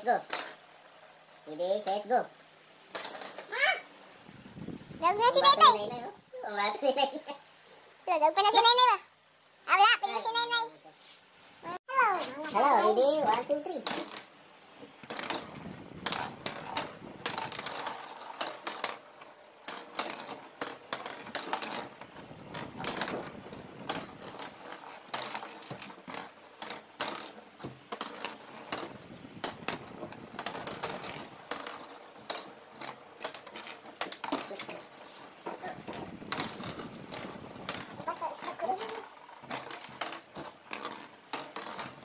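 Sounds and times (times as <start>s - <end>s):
spinning tops clattering: 2.9s - 3.6s, 12.8s - 14.4s, 15.0s - 42.0s.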